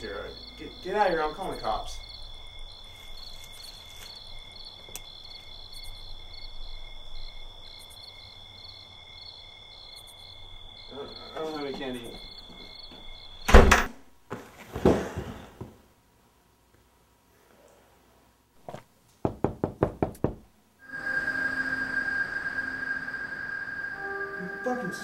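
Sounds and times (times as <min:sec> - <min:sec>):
crickets chirping: 0:00.0 - 0:14.2, 0:19.4 - 0:25.0
door slamming shut: 0:13.4 - 0:14.0.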